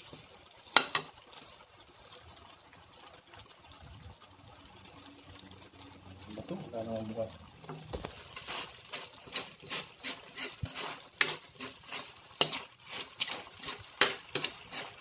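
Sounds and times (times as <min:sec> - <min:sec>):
metal ladle scraping a wok: 0:08.2 - 0:15.0.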